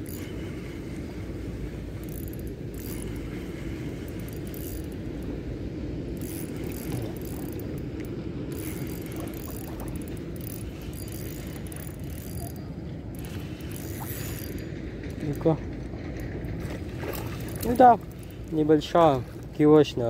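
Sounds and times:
fishing reel whirring and clicking: 1.9s - 5.4s, 6.1s - 15.5s, 17.2s - 18.6s.

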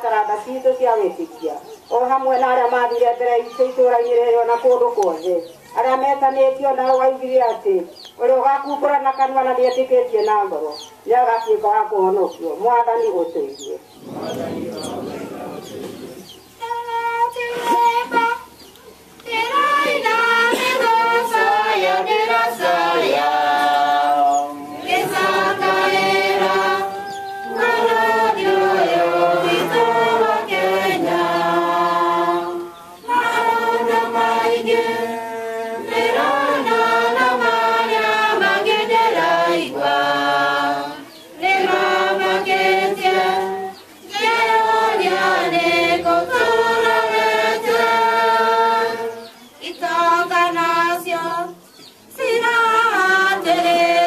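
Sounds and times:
group singing a hymn: 13.7s - 54.0s.

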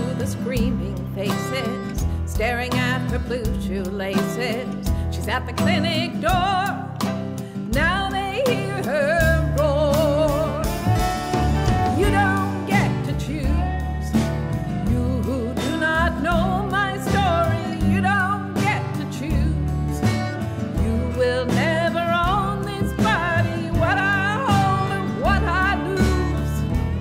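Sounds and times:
sustained instrumental accompaniment: 3.7s - 27.0s
person singing with vibrato: 7.6s - 26.8s.

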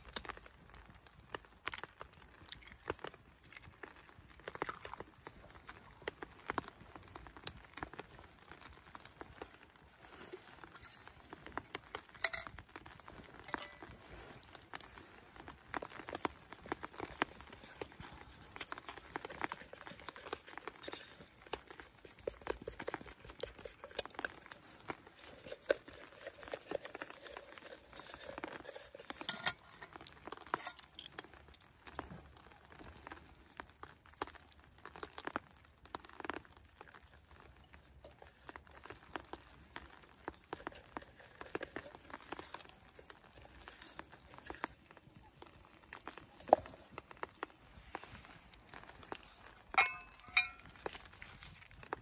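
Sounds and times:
rustling: 0.0s - 52.0s
spoon scraping metal pot: 49.8s - 50.7s.

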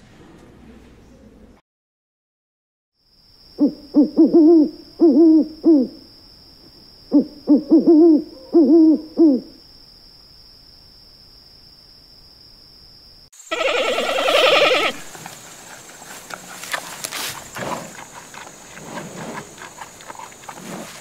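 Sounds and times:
owl hooting: 3.6s - 6.1s, 7.1s - 9.6s, 13.5s - 15.1s.

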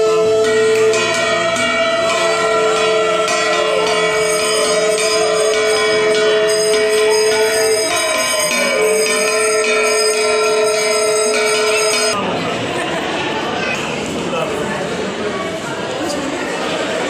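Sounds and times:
bells ringing rapidly: 0.0s - 12.2s
long held tones: 0.0s - 12.2s.

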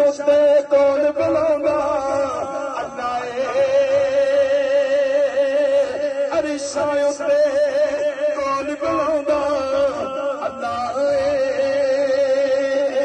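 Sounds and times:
man singing into microphone: 0.0s - 13.0s.

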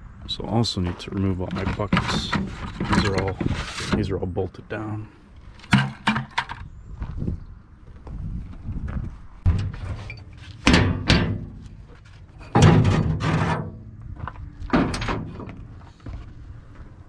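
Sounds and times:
metal clanking on steel flatbed: 9.5s - 11.7s, 12.4s - 13.9s.

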